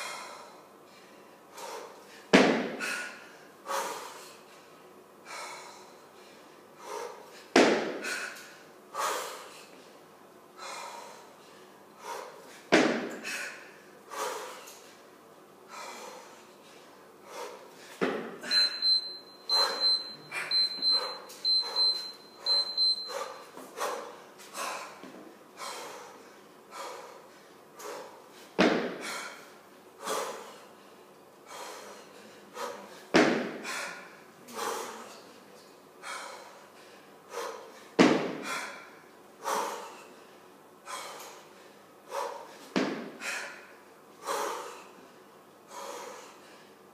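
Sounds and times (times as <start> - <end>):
hard rhythmic breathing: 0.0 - 46.9
kettlebell thud: 2.3 - 2.8, 7.5 - 8.0, 12.7 - 13.1, 28.6 - 29.1, 33.1 - 33.7, 38.0 - 38.5, 42.7 - 43.2
short high electronic beeps: 18.4 - 23.2.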